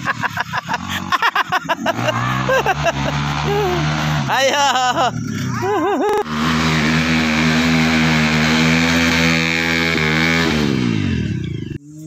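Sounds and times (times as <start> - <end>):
dirt bike engine revving: 0.0 - 12.0.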